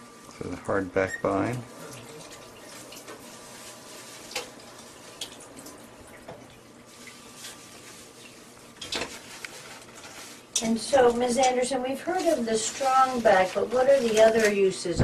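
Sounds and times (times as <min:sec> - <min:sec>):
tap water running into sink: 0:00.3 - 0:09.5.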